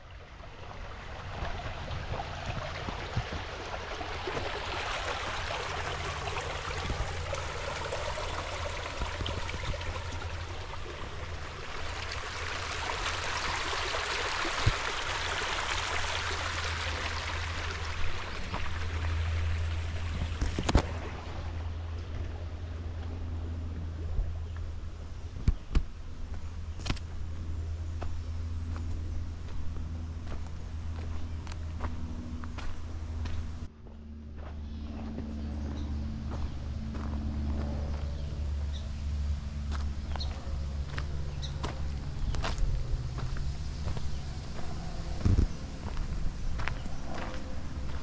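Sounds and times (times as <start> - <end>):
river water rushing: 0.4 - 21.6.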